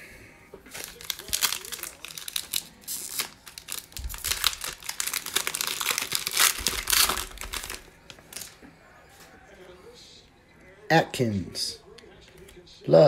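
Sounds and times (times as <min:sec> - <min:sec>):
foil wrapper crinkling and tearing: 0:00.7 - 0:08.6.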